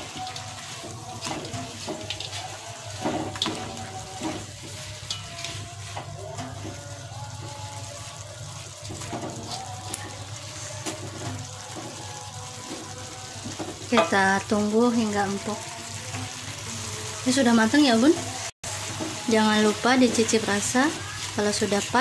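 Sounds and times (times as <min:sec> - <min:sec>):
spatula scraping a wok: 0:00.0 - 0:14.1, 0:18.1 - 0:22.0.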